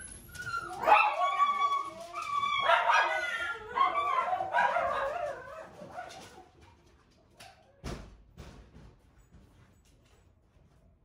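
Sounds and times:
dog whining and yipping: 0.0 - 5.8.

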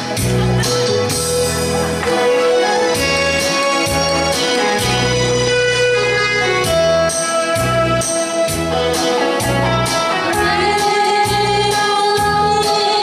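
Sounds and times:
woman singing into microphone: 9.9 - 13.0.

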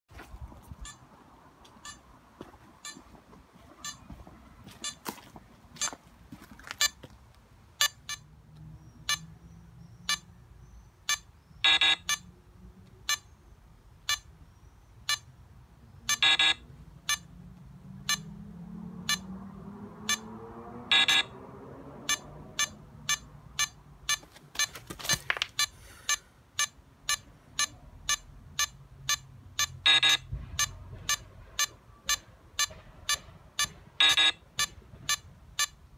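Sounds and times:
short timer beeps: 7.8 - 8.3, 11.1 - 12.2, 14.1 - 14.3, 16.1 - 17.3, 18.1 - 18.3, 20.9 - 21.3, 22.1 - 24.7, 25.6 - 35.8
longer louder beeps: 11.1 - 12.2, 16.1 - 17.3, 18.1 - 18.3, 19.1 - 19.3, 20.9 - 21.4, 22.1 - 24.2, 25.6 - 35.8.

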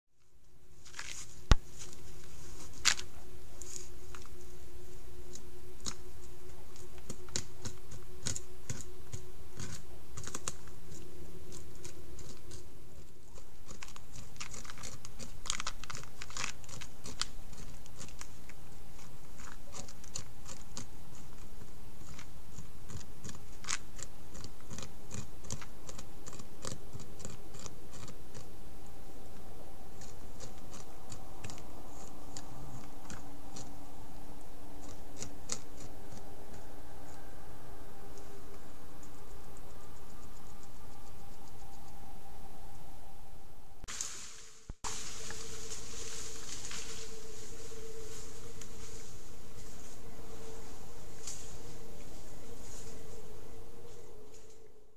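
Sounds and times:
steady hiss: 0.2 - 54.9
beaver gnawing wood: 0.8 - 42.8.

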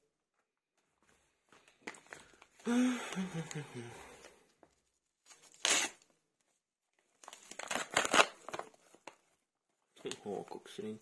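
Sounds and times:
plastic mailer tearing and crinkling: 5.3 - 6.1, 7.2 - 9.2.

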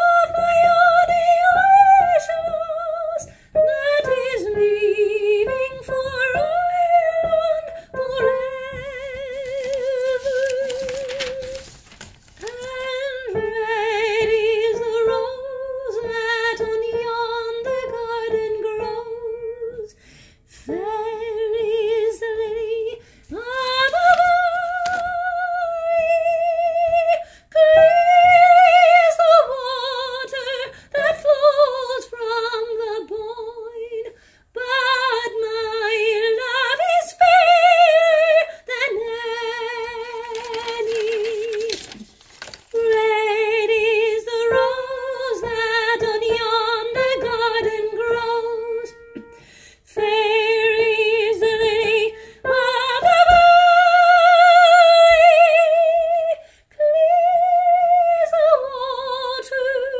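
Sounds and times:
woman singing soprano: 0.0 - 11.8, 12.4 - 42.0, 42.7 - 59.9
singer breathing: 19.9 - 20.7, 27.2 - 27.5, 34.1 - 34.5, 49.3 - 49.9, 52.1 - 52.5, 56.4 - 56.7.

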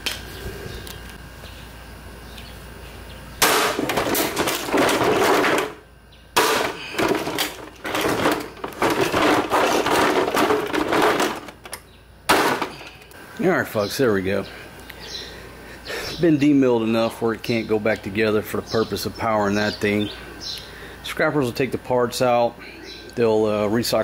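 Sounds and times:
blade hacking plastic: 3.4 - 5.8, 6.4 - 13.0
plastic cracking: 6.4 - 13.1.

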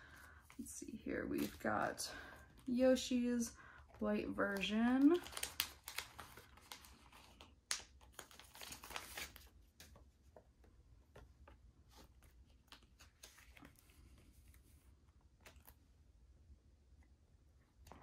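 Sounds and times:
plastic sleeve crinkling: 0.4 - 9.6.

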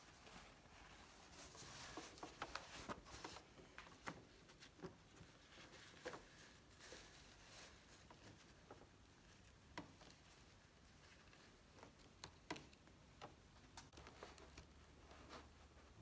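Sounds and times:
fabric rustling: 0.0 - 12.1
small clicks and taps: 11.3 - 14.7.

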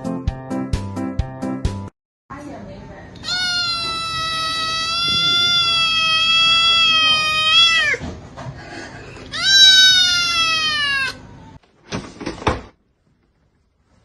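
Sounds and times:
kitten meowing loudly: 3.2 - 8.0, 9.3 - 11.2.

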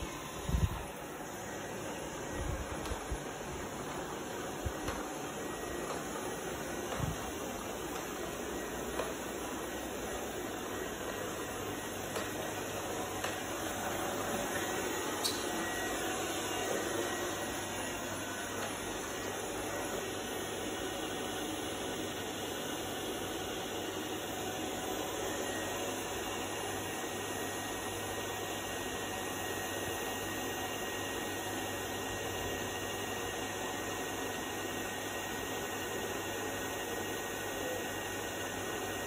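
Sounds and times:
robot vacuum humming: 0.0 - 27.3.

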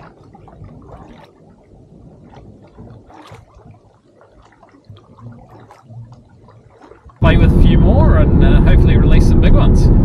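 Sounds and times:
kayak paddle splashing: 0.0 - 7.8
low rumble: 7.2 - 10.0.

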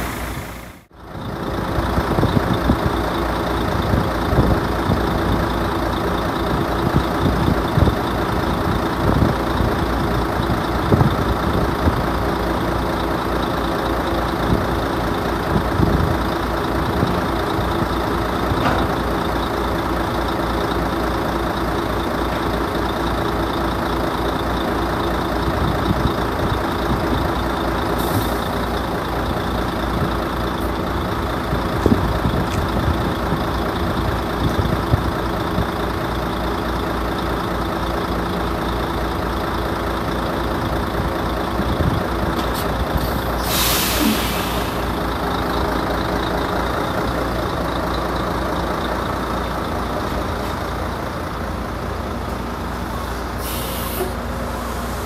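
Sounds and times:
air brake hiss: 0.0 - 0.9, 28.0 - 28.5, 43.0 - 45.0, 53.4 - 55.0
diesel truck engine idling: 0.0 - 55.0.

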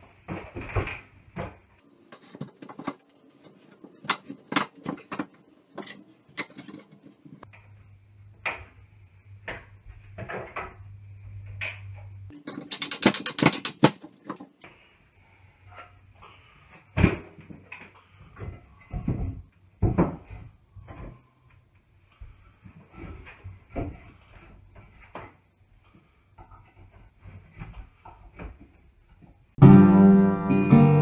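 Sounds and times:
wood and tools clattering: 0.1 - 7.5, 12.3 - 14.6
rapid clicking: 12.4 - 14.0.

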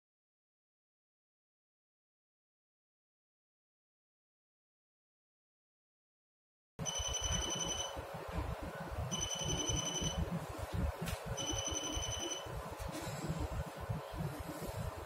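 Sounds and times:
electronic buzzer beeping: 6.8 - 8.0, 9.1 - 10.3, 11.4 - 12.5.

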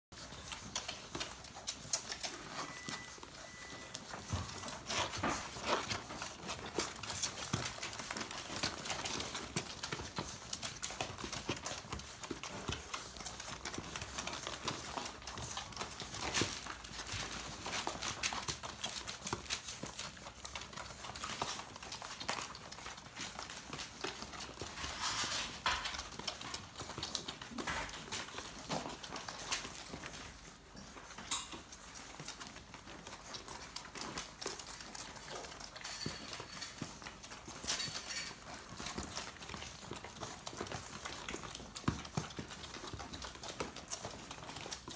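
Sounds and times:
puppies suckling: 0.1 - 44.9.

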